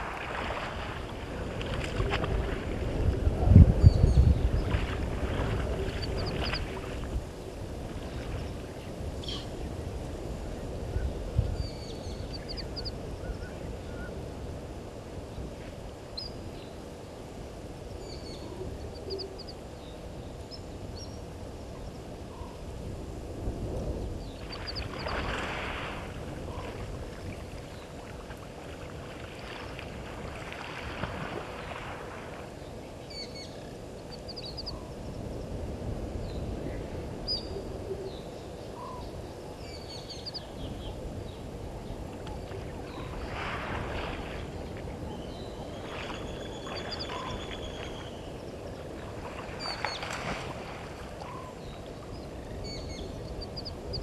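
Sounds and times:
water splashing: 0:00.0 - 0:03.6, 0:04.5 - 0:08.9, 0:24.4 - 0:32.6, 0:42.5 - 0:45.0, 0:45.6 - 0:52.2
small birds chirping: 0:33.1 - 0:34.9.

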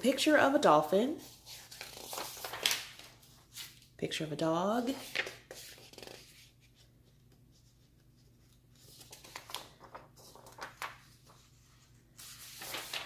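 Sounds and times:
paper rustling and sliding: 0:01.2 - 0:03.9, 0:04.9 - 0:13.0.

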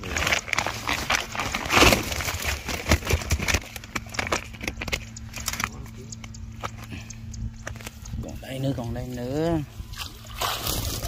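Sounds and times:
bag rustling: 0:00.0 - 0:04.2.

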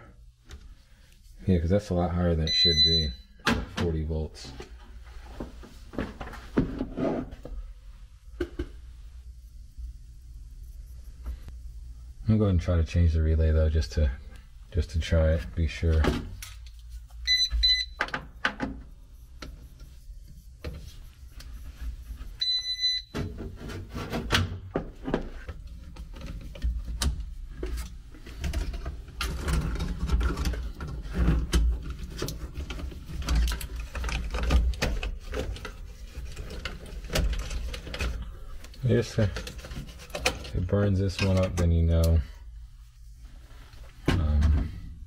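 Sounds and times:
electronic meter beeps: 0:02.4 - 0:03.3, 0:17.2 - 0:18.0, 0:22.4 - 0:23.2
small clicks and rattles of wiring: 0:32.1 - 0:35.7.

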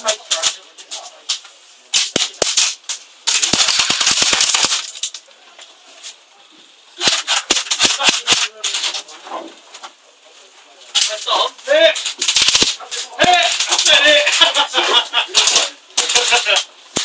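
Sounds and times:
airsoft rifles firing sharp snaps: 0:01.9 - 0:05.2, 0:07.0 - 0:08.5, 0:12.0 - 0:14.0.

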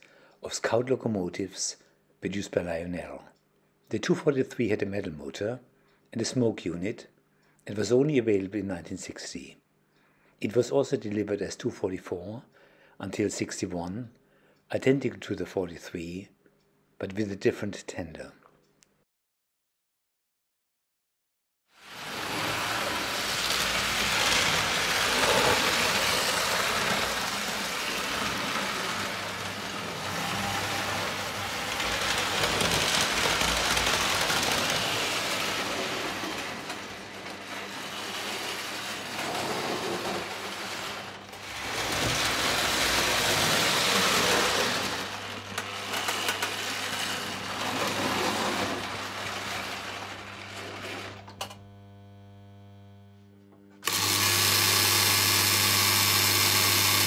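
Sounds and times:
model train rolling on track: 0:21.8 - 0:51.4.

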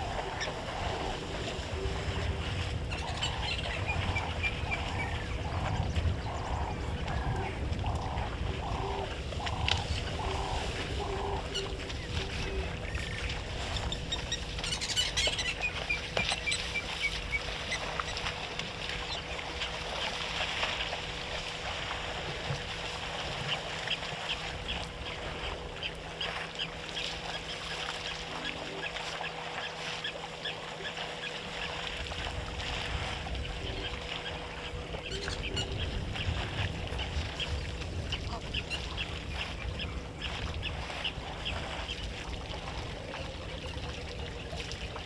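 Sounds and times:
elephants splashing in water: 0:00.0 - 0:45.0
bird calling repeatedly: 0:02.9 - 0:19.7, 0:33.4 - 0:36.4.

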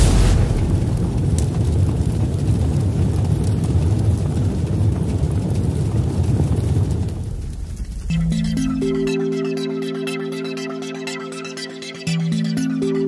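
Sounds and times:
faint hiss: 0:00.0 - 0:01.2
deep rumble: 0:00.0 - 0:08.9.

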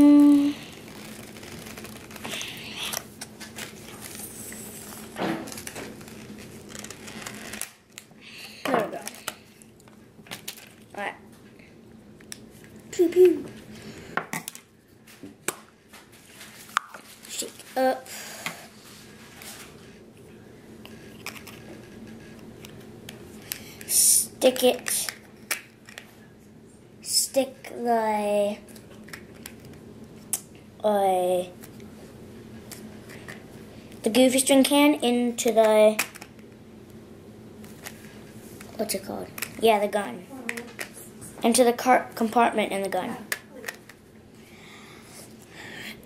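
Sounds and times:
low steady hum: 0:00.0 - 0:46.0
hands handling plastic packaging: 0:00.3 - 0:10.9.

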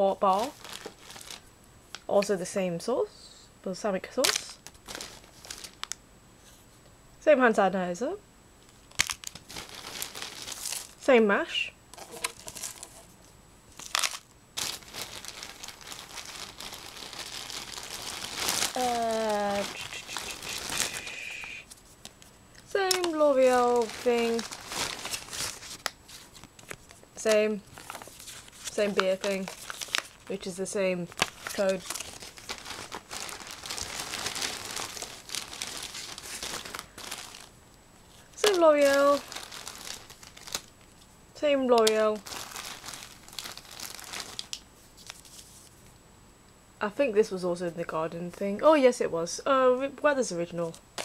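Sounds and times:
plastic wrappers crinkling: 0:00.2 - 0:02.2, 0:04.2 - 0:06.0, 0:08.7 - 0:11.1, 0:12.0 - 0:41.1, 0:41.8 - 0:45.8
paper leaflets rustling: 0:00.3 - 0:02.0, 0:04.3 - 0:05.9, 0:08.9 - 0:11.0, 0:12.0 - 0:13.2, 0:13.8 - 0:37.5, 0:38.1 - 0:40.7, 0:41.9 - 0:45.8.

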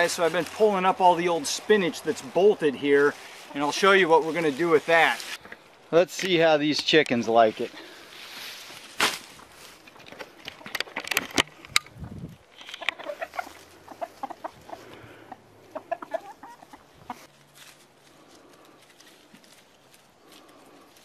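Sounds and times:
chickens clucking: 0:00.0 - 0:05.7, 0:12.6 - 0:17.4
leaves rustling and clicking: 0:00.0 - 0:15.2, 0:17.0 - 0:21.0.

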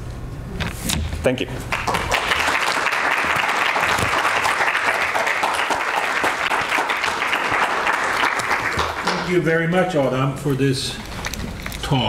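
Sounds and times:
audience applauding: 0:01.7 - 0:09.4.

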